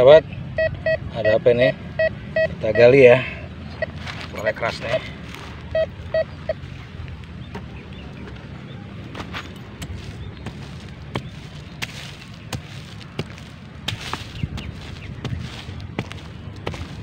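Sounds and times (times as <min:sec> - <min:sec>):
hand hoe chopping into soil: 0:09.2 - 0:17.0.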